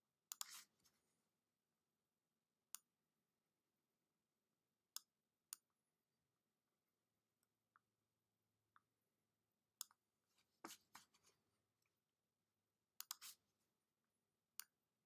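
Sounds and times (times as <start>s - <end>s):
faint computer mouse clicks: 13.0s - 13.4s.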